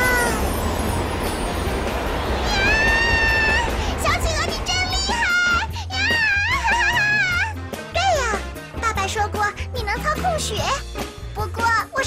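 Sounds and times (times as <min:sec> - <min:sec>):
rushing wind with rumble: 0:00.0 - 0:07.0.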